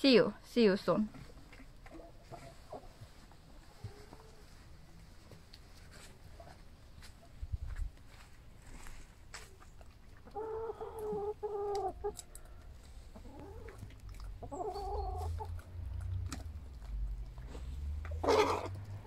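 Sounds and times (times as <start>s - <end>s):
hens clucking: 1.2s - 5.0s, 9.5s - 19.0s.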